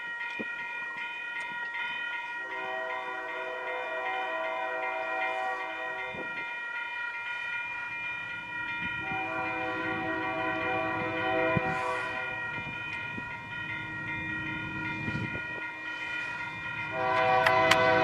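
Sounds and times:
locomotive air horn chord: 2.4 - 6.3, 9.0 - 12.4, 16.2 - 18.0
train rumbling: 7.4 - 18.0.

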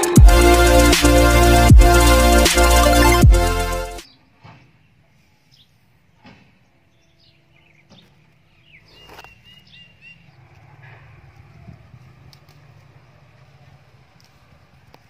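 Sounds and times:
low outdoor background noise: 4.0 - 15.0.

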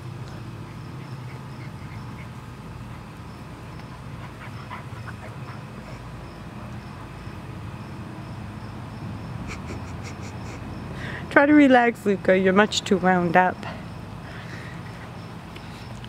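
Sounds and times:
steady low hum: 0.0 - 16.0
dog noises: 0.3 - 6.8.

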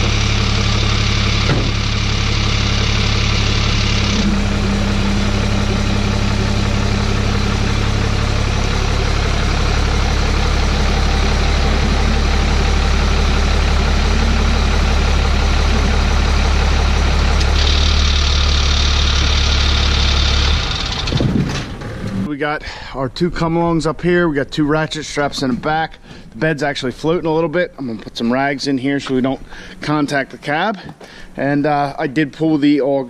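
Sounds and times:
diesel engine idling: 0.0 - 24.8, 29.2 - 30.3.

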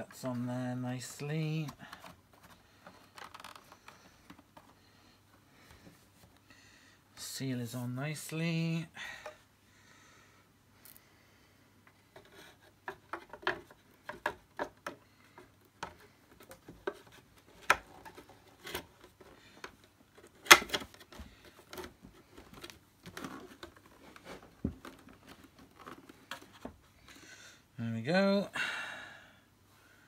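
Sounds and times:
plastic parts clicking and knocking: 1.6 - 4.8, 11.8 - 26.8.

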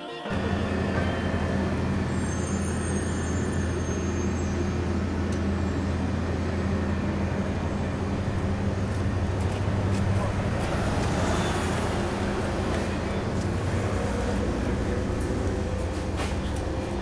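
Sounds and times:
street traffic hum: 0.3 - 17.0.

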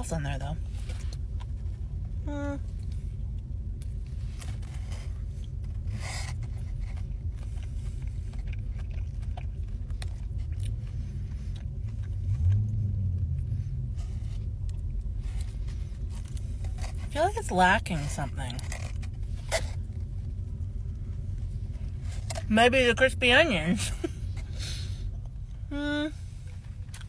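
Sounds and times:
car cabin low rumble: 0.0 - 27.0
short low hum: 0.5 - 17.2.

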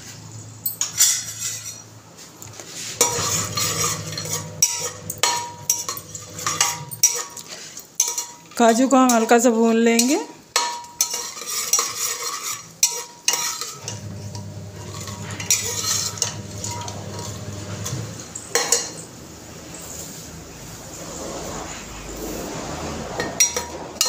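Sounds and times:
ladle scraping a pot: 2.7 - 8.7, 10.6 - 19.0, 19.7 - 24.0.

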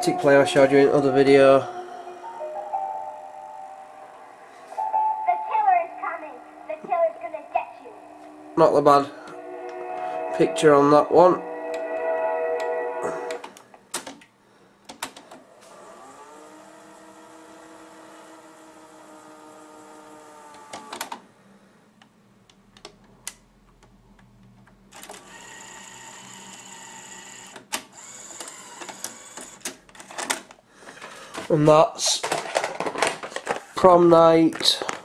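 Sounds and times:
tape motor whirring: 15.6 - 21.0, 25.0 - 29.7.

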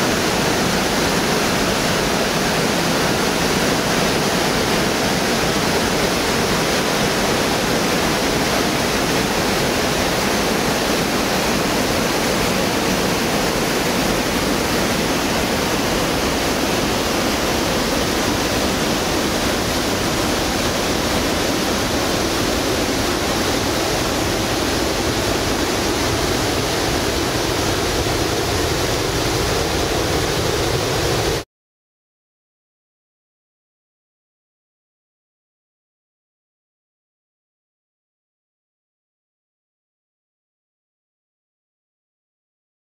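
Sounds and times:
river rushing over weir: 0.0 - 31.4.

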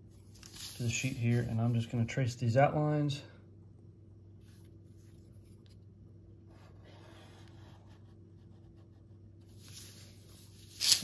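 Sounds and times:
low steady hum: 0.0 - 11.0
pencil scratching along ruler: 6.5 - 9.1.

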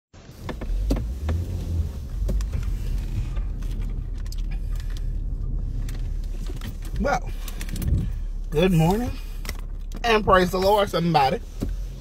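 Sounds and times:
car engine rumble inside cabin: 0.2 - 12.0.

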